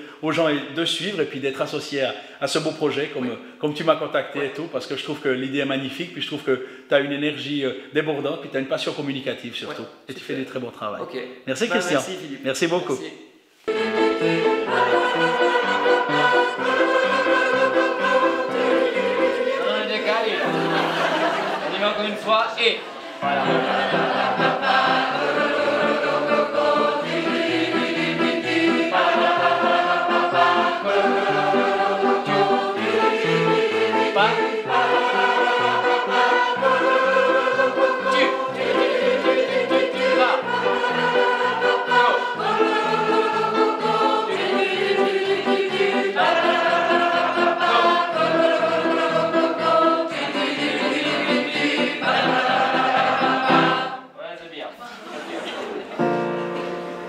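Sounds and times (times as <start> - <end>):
mixed choir singing: 13.7 - 22.2, 23.0 - 54.2.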